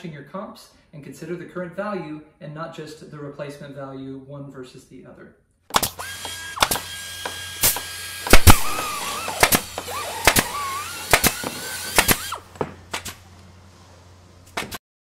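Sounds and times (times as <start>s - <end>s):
sharp snapping hits: 7.6s - 13.2s.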